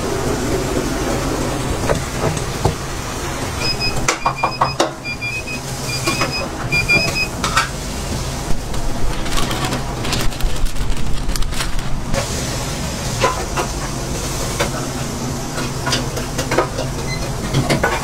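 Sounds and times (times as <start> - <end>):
low machine hum: 0.0 - 17.7
short high electronic beeps: 3.6 - 7.3.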